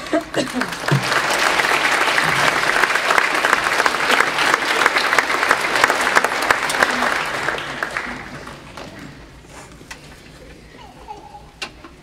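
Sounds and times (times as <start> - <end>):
audience clapping: 0.0 - 9.2.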